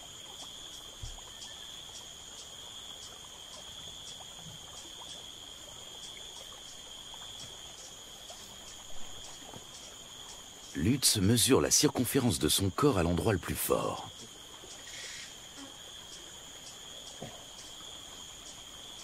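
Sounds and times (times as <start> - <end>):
insect ticking chirp: 0.0 - 19.0
insect trilling: 0.0 - 19.0.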